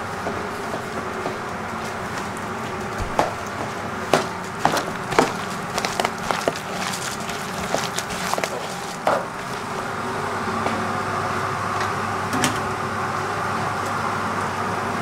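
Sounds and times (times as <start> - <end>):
kitchen background noise: 0.0 - 15.0
batter being hand-mixed: 0.3 - 10.4.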